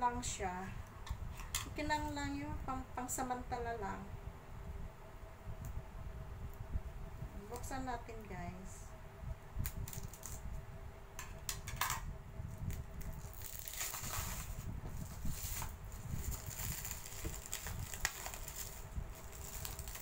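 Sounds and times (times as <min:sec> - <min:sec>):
plastic wrap crinkling: 0:12.6 - 0:20.0
scissors cutting plastic: 0:12.7 - 0:20.0.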